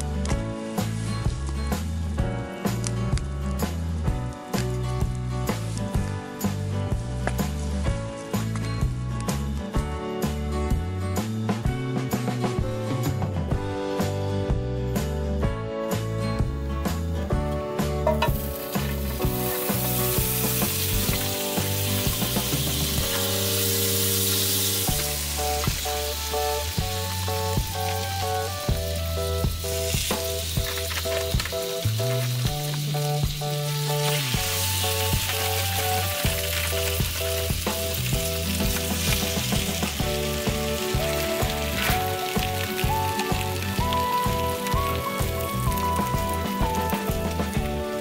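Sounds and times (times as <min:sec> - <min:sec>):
background music with bass line: 0:00.0 - 0:48.0
bread sizzling in a frying pan: 0:18.0 - 0:48.0
small pops of frying: 0:18.0 - 0:48.0.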